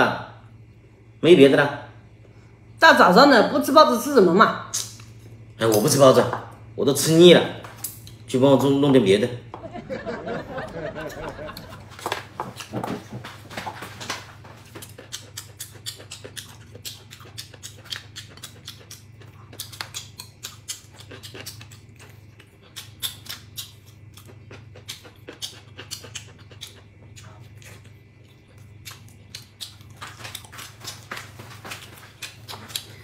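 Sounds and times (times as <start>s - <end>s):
low steady hum: 0.0s - 33.0s
mouth clicks and lip smacks chewing: 14.8s - 33.0s.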